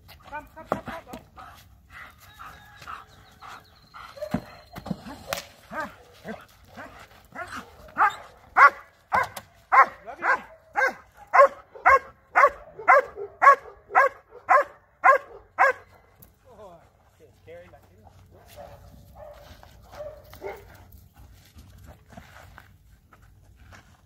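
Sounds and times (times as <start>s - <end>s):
dog barking: 5.7s - 16.1s, 18.3s - 20.8s.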